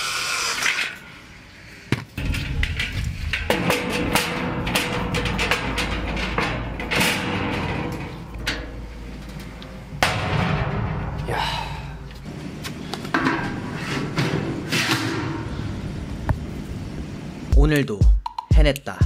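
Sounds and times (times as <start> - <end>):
metal grate clanking: 2.2 - 12.1.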